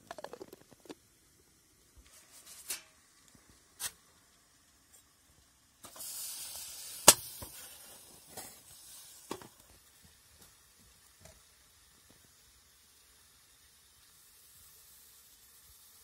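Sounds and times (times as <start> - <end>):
steam hissing: 5.7 - 16.0.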